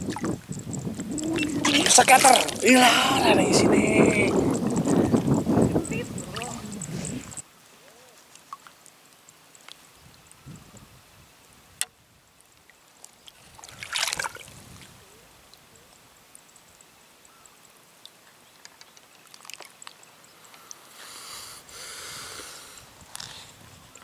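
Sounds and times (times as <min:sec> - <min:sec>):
water splashing: 0:00.0 - 0:07.4, 0:12.7 - 0:14.8, 0:18.5 - 0:20.1
soft hiss: 0:00.0 - 0:24.0
small ticks: 0:00.1 - 0:01.9, 0:04.3 - 0:10.8, 0:16.2 - 0:21.1, 0:22.3 - 0:24.0.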